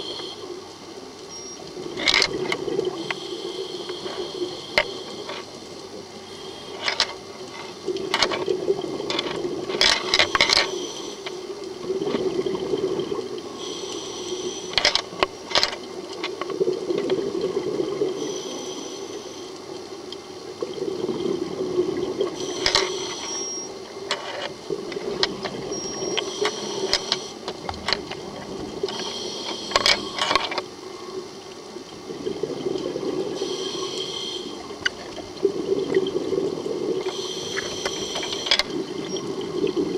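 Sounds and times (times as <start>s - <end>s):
regulator inhale hiss with clicks: 0.0s - 8.4s, 9.1s - 11.7s, 13.2s - 16.6s, 18.2s - 20.2s, 22.2s - 31.2s, 33.3s - 35.2s, 37.0s - 39.3s
bubbling exhaled air: 20.6s - 23.4s, 32.0s - 39.9s.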